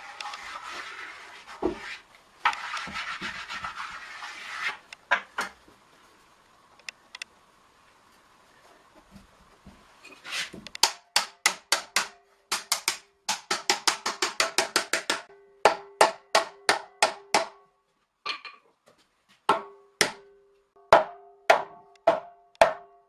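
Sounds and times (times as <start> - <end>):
hammer striking metal hoops: 10.8 - 17.7, 19.5 - 23.0.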